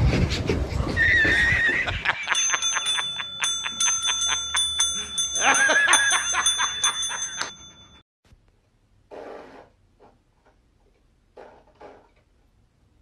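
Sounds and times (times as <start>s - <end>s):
counter service bell dinging: 2.2s - 8.0s.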